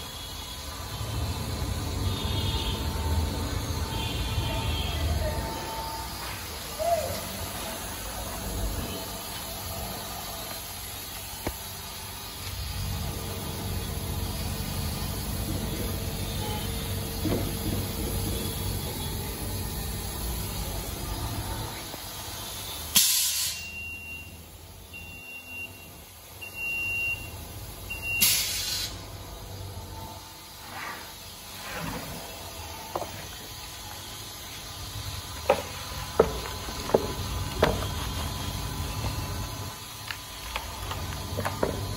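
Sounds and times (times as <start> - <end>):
air hiss bursts: 21.9 - 23.8, 28.0 - 29.2, 30.4 - 32.5.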